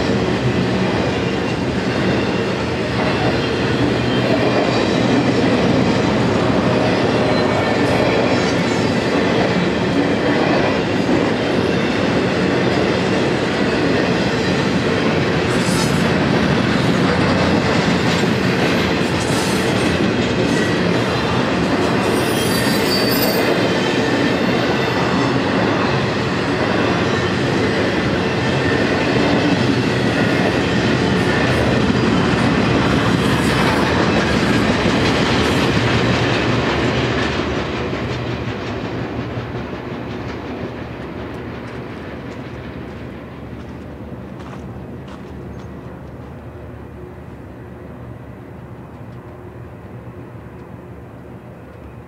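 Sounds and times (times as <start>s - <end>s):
freight train rolling past: 0.0s - 52.0s
wheels squealing: 21.9s - 25.4s.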